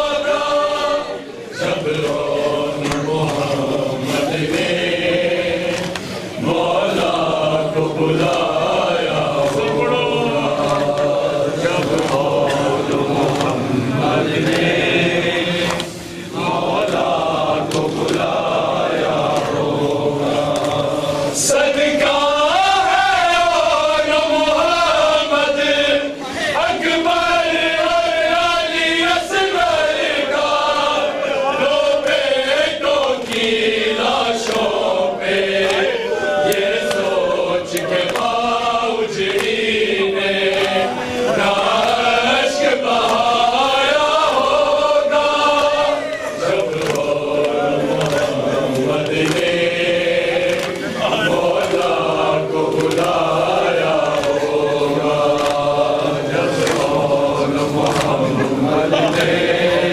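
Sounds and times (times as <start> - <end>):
men chanting together: 0.0 - 59.9
chest-beating slaps: 14.3 - 14.8.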